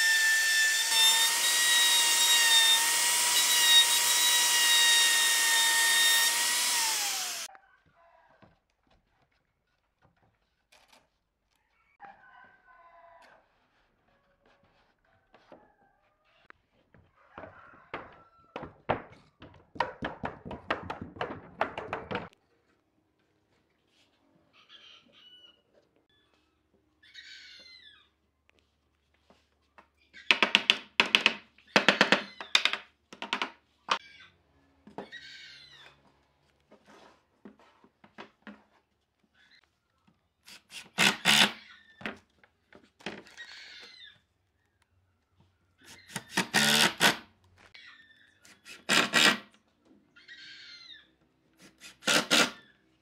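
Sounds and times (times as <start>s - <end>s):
wooden boards knocking: 17.9s - 22.4s.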